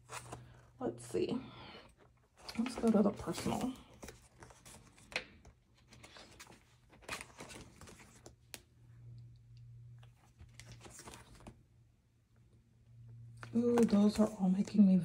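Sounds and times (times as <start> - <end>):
paper pages rustling: 0.0 - 0.7, 2.1 - 8.7, 10.0 - 11.6, 13.4 - 14.5
low steady hum: 0.0 - 15.0.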